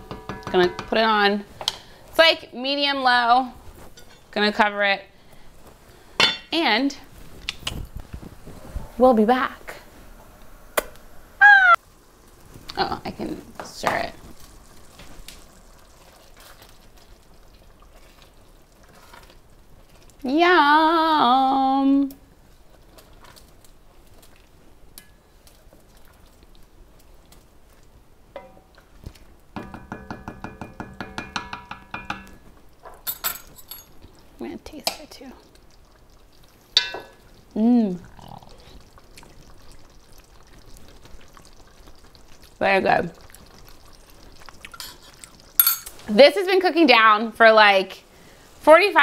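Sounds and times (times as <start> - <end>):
metal spoon clinking on pot: 0.1 - 1.0, 28.4 - 28.6, 33.0 - 34.0, 44.7 - 46.0
wooden spoon stirring thick sauce: 14.4 - 20.3
person humming mmm: 37.6 - 38.7.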